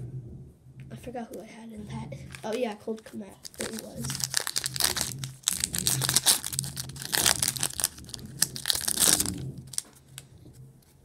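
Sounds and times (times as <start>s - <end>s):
foil wrapper crinkling and tearing: 2.3s - 10.2s.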